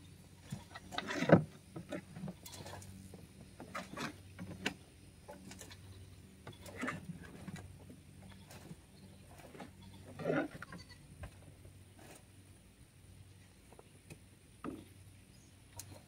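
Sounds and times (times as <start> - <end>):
shovels scraping compost: 0.4 - 12.5.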